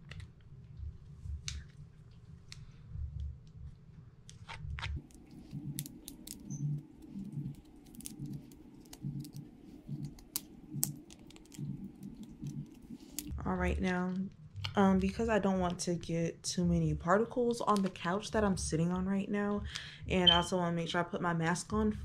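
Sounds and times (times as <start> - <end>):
resin edges snapping off: 4.3 - 13.3.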